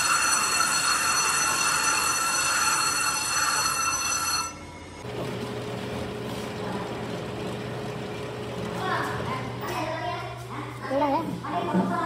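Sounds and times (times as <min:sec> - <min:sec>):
machine motor humming: 0:05.0 - 0:10.3.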